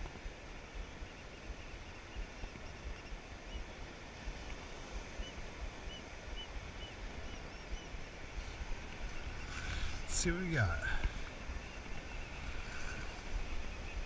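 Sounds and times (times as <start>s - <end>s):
surf hissing on beach: 0.0s - 14.0s
wind buffeting microphone: 0.0s - 14.0s
faint high chirps: 5.1s - 14.0s.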